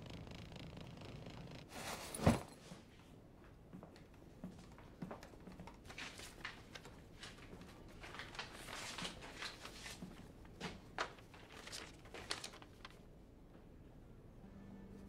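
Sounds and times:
paper rustling: 4.6 - 13.1.

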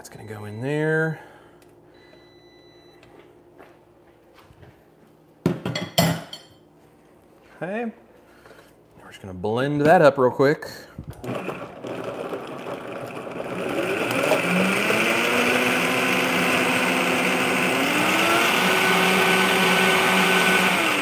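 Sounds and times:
blender motor whine: 11.2 - 21.0.

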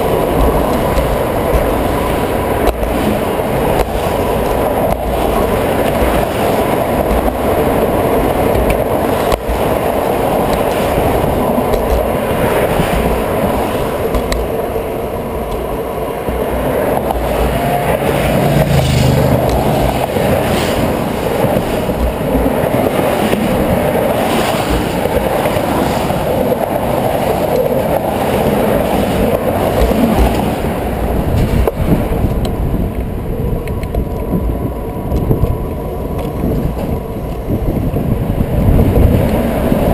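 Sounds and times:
passing vehicle hum: 0.0 - 24.7
bicycle wheels rumbling on concrete: 0.0 - 39.9
road traffic: 0.0 - 39.9.

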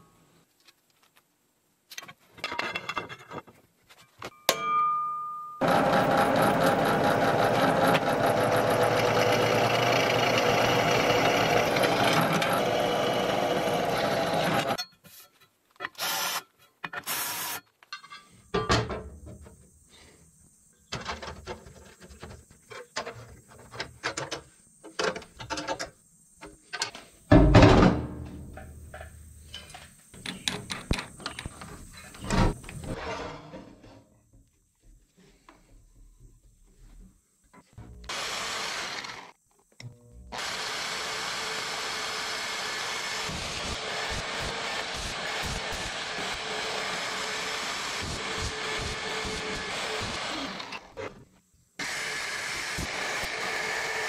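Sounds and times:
drill press drilling metal: 5.6 - 14.8, 40.4 - 50.9.

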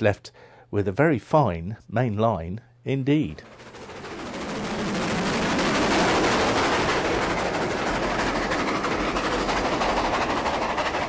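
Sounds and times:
steam train running past: 2.6 - 11.0
rail clatter: 3.3 - 11.0.

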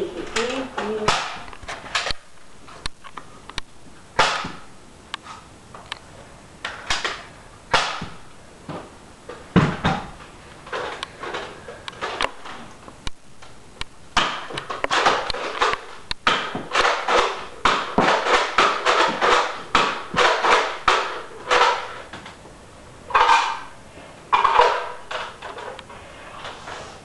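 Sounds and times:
foam dart blaster firing: 4.2 - 4.7.

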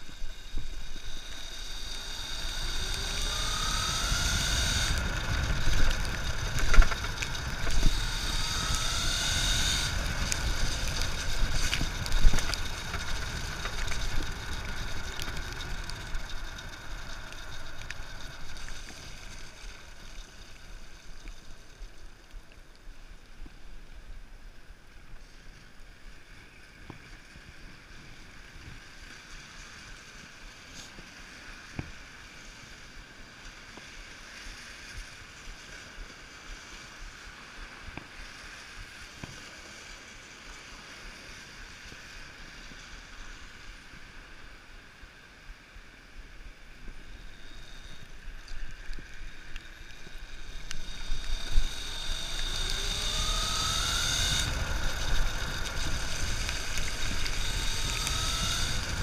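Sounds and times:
electric motorcycle motor whine: 0.0 - 21.9, 46.9 - 59.0
tyre hiss on wet asphalt: 0.0 - 23.6, 28.8 - 59.0
wind rush: 50.8 - 59.0.

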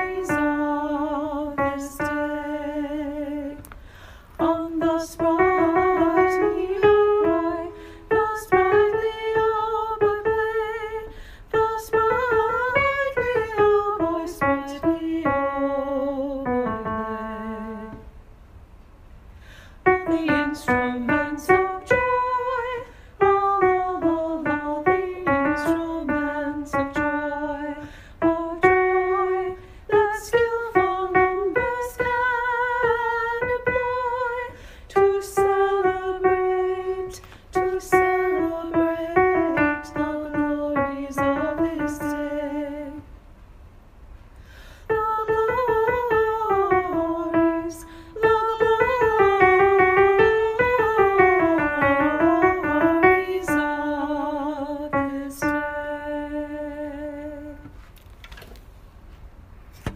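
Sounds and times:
piano melody: 4.5 - 18.1, 35.0 - 43.0, 45.0 - 56.6.

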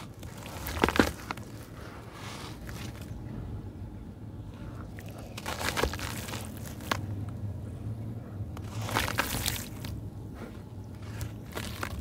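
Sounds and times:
sand-cement chunks crumbling: 0.0 - 3.2, 5.0 - 7.1, 8.6 - 10.0, 11.0 - 12.0.

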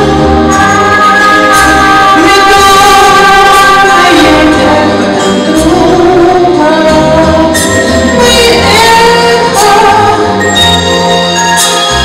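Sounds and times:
instrumental accompaniment: 0.0 - 12.0
woman singing into microphone: 0.5 - 10.5.

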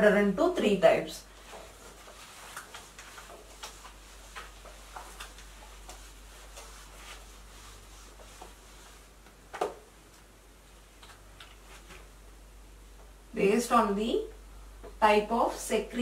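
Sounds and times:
eraser wiping a whiteboard: 1.3 - 9.2.

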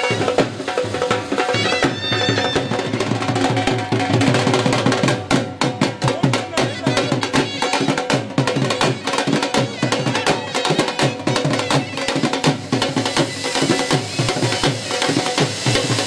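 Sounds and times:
fast steady drumming: 0.0 - 16.0.

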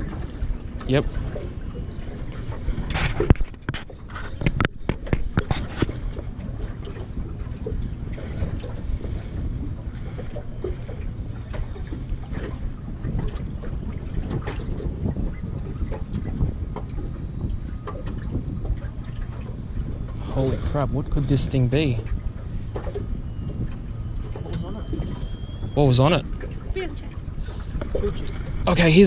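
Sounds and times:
water lapping against boat hull: 0.0 - 29.0
wind buffeting microphone: 0.0 - 29.0.

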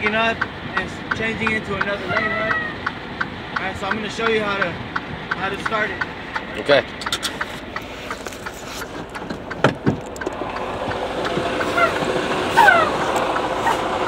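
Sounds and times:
truck engine idling: 0.0 - 14.0
knocks and clicks of climbing into cab: 8.9 - 11.6.

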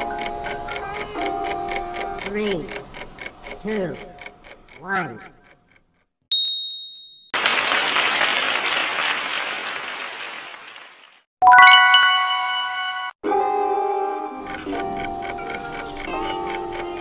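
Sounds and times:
music: 0.1 - 2.2, 11.4 - 17.0
short high ding: 6.3 - 7.4
recorded applause: 7.4 - 11.3
bright chime: 11.4 - 13.2.

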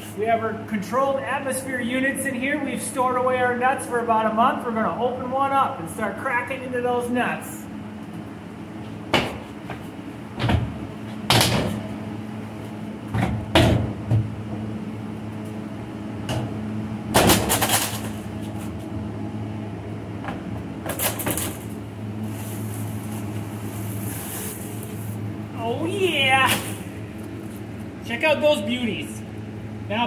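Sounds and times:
fan humming: 0.0 - 30.0
mesh bags rustling: 22.2 - 25.2.

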